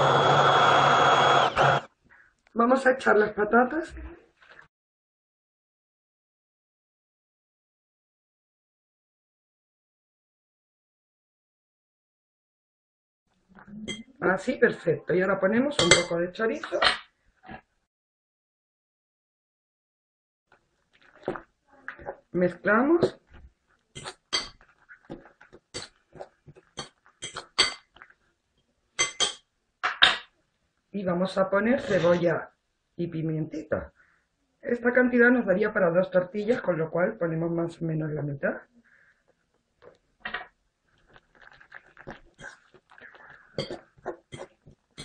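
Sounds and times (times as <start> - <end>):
clinks against glass bowl: 13.9 - 14.1, 15.8 - 16.1, 24.3 - 24.6, 29.0 - 29.4
wet squelches of stirring: 20.5 - 28.9, 38.8 - 45.0.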